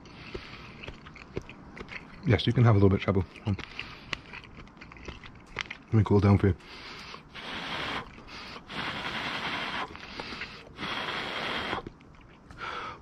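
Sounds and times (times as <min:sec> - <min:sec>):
person blowing on food: 0:07.2 - 0:12.0.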